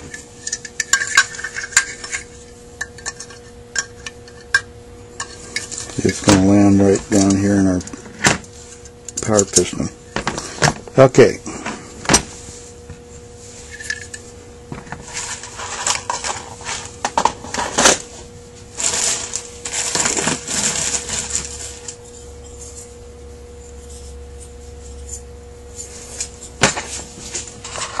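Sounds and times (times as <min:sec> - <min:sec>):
metal parts clinking: 0:00.0 - 0:02.2
rustling of parts: 0:00.0 - 0:04.6, 0:05.2 - 0:10.8, 0:13.6 - 0:22.9, 0:25.7 - 0:28.0.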